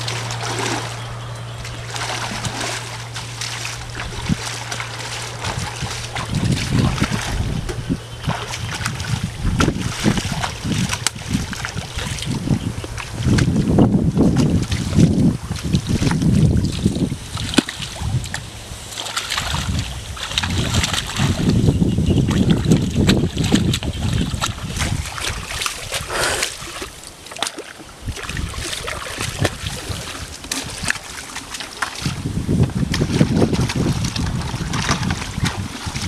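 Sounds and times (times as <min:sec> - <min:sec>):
hands splashing in water: 0:00.0 - 0:13.5
wind on microphone: 0:00.0 - 0:27.0, 0:28.0 - 0:31.3, 0:31.9 - 0:36.0.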